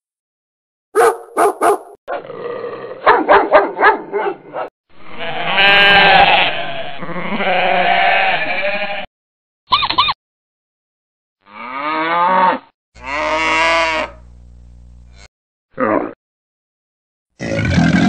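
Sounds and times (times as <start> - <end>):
dog barking: 1.0 - 2.0, 3.0 - 4.7
goat bleating: 5.1 - 9.1.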